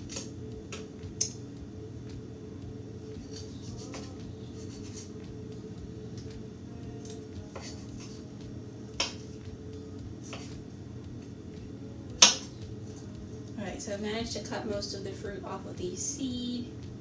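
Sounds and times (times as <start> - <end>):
low hum: 0.0 - 17.0
knife tapping cutting board: 9.0 - 9.2.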